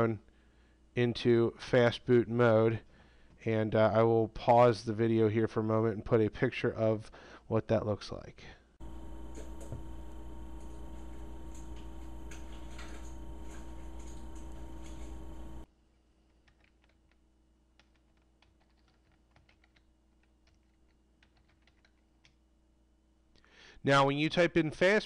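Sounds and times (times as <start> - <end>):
steady hum: 8.8 - 15.7
keyboard typing clicks: 17.8 - 22.4.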